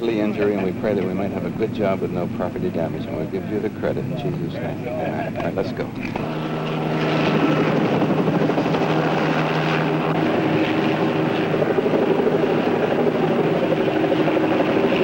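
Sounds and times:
engine noise with pitched hums: 0.0s - 15.0s.

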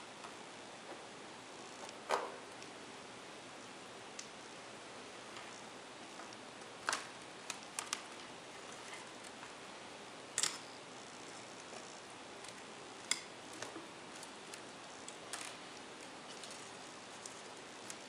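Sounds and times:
faint steady hiss: 0.0s - 18.0s
laptop parts clicking and tapping: 6.8s - 8.2s.

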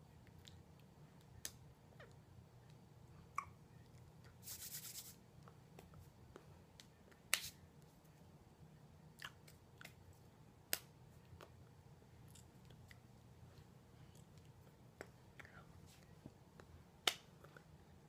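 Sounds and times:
hands clicking and brushing together: 4.4s - 5.2s, 6.8s - 7.6s.

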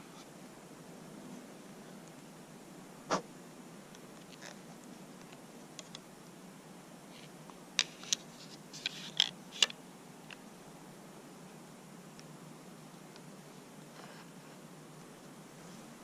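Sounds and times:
steady low hiss: 0.0s - 16.0s
crossbow gear clicks and scrapes: 7.1s - 9.7s.

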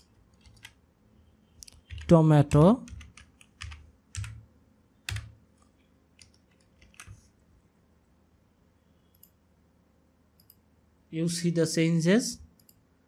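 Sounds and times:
computer keyboard keystrokes: 0.3s - 0.8s, 1.6s - 4.4s, 5.1s - 5.3s, 6.2s - 7.2s.

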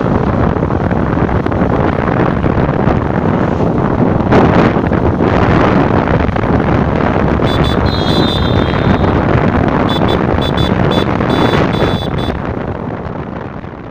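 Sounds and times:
vehicle engine: 0.0s - 13.9s
wind buffeting microphone: 0.0s - 13.9s
high-pitched beeping tone: 7.5s - 9.2s, 9.9s - 12.4s.

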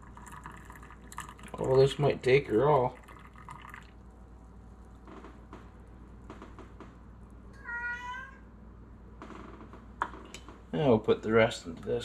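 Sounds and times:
cat meowing: 7.5s - 8.5s.

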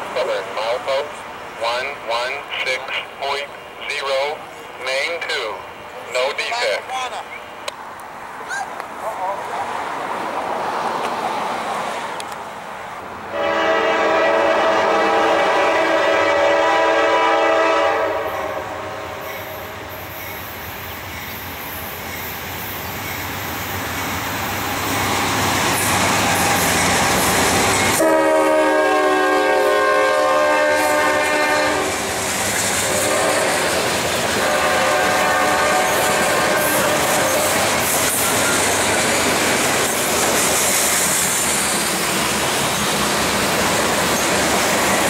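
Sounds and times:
train rumble: 0.0s - 45.0s
locomotive horn chord blasts: 13.3s - 19.2s, 27.9s - 32.0s, 32.9s - 33.7s, 34.4s - 37.5s
freight cars clickety-clack: 35.8s - 45.0s.

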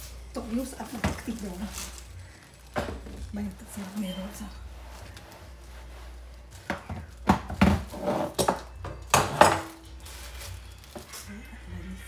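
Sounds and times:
utensils knocking on dishes: 6.7s - 9.8s.

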